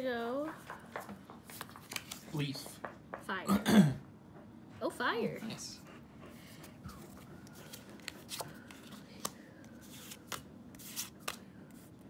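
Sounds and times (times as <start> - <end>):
trading cards flipped by hand: 1.5 - 2.3, 7.4 - 11.9
card sliding and snapping: 7.6 - 11.4.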